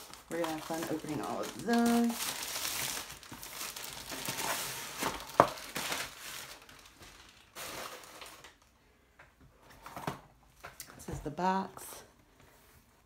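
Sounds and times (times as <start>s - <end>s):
plastic packaging crinkling: 0.0s - 8.7s.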